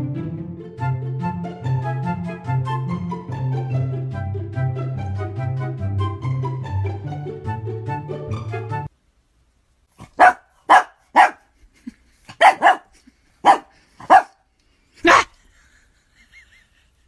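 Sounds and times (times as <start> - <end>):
dog barking: 10.0 - 11.5, 12.3 - 14.4, 15.0 - 15.4.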